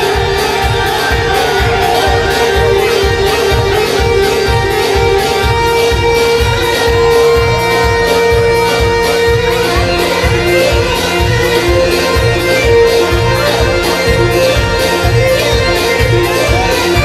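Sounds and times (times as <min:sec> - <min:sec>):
band playing dance music: 0:00.0 - 0:17.0
steady drum beat: 0:00.0 - 0:17.0.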